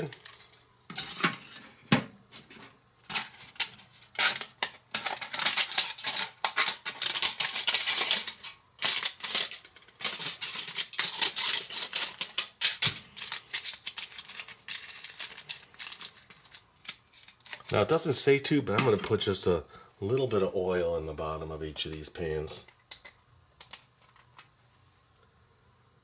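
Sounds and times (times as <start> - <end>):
aluminium foil crinkling: 0.0 - 1.3, 3.0 - 18.0.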